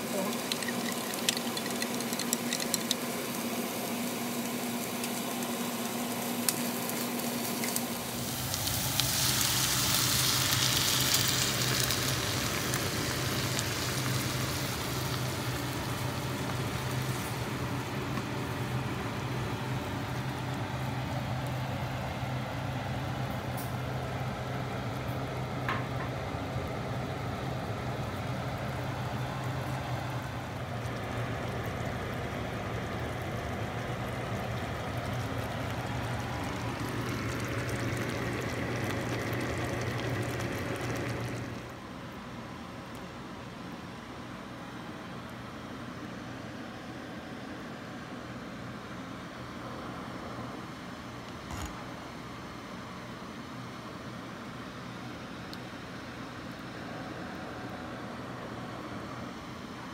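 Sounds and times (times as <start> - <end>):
sauce sizzling in frying pan: 0.0 - 19.0, 28.4 - 41.6.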